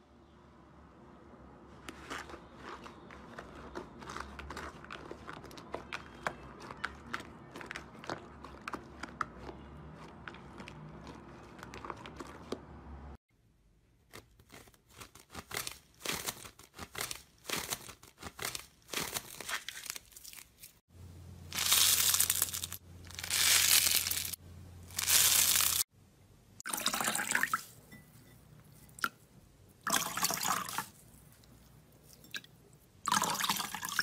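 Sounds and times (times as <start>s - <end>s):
crunchy slime tearing: 14.0s - 20.8s, 21.6s - 25.8s
slime crackling: 21.5s - 25.8s.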